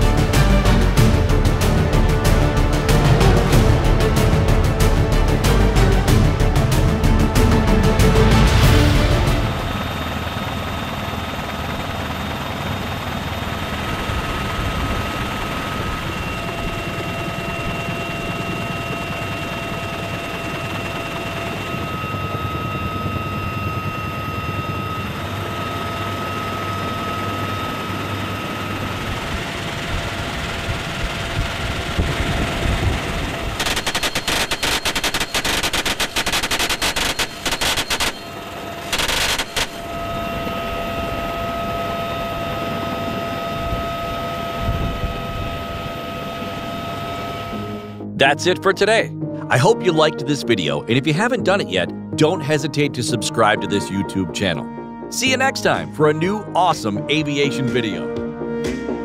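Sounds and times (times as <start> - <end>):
helicopter rotor and turbine: 0.0 - 59.0
machine gun firing bursts: 33.5 - 39.8.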